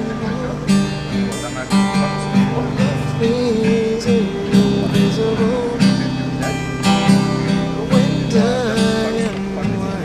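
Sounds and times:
acoustic guitar strummed: 0.0 - 10.0
man singing: 2.3 - 10.0.

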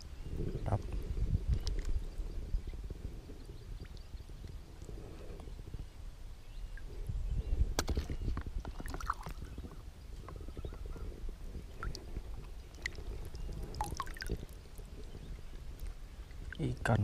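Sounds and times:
small splashes and drips: 8.7 - 9.6, 11.7 - 16.8
water lapping and sloshing: 8.7 - 9.6, 11.0 - 16.8.

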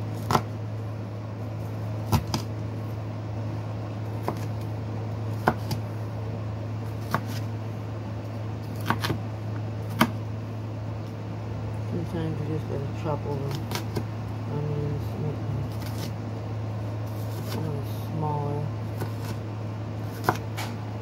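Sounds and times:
steady low hum: 0.0 - 21.0
knife chopping on wooden board: 2.1 - 2.5, 4.2 - 4.5, 5.4 - 5.8, 7.0 - 7.4, 8.8 - 9.2, 9.9 - 10.2, 19.0 - 19.4, 20.1 - 20.8.

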